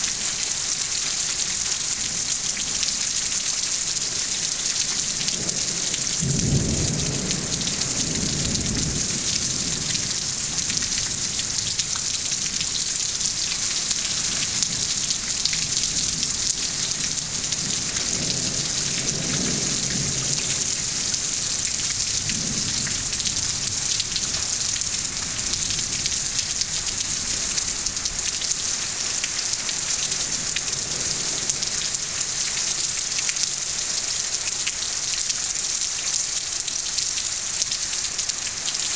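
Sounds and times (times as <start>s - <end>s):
heavy rain pouring: 0.0s - 38.9s
thunder rumbling: 6.2s - 11.7s.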